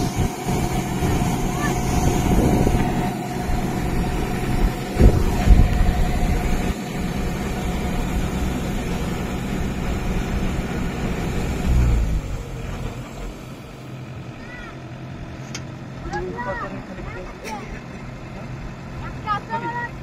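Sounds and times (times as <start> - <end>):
auger discharging grain: 0.0 - 14.6
combine harvester running: 0.0 - 20.0.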